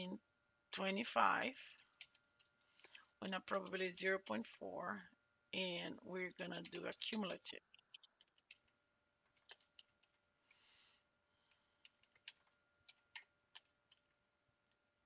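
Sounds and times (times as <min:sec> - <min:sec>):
faint keyboard keystrokes: 0:11.5 - 0:14.8.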